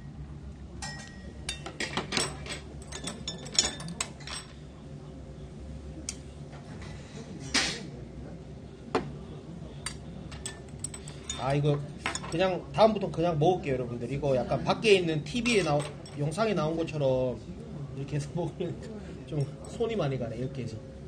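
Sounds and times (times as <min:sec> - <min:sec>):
metal utensils clinking on bowls: 0:00.8 - 0:04.6, 0:09.8 - 0:12.5, 0:15.3 - 0:16.4.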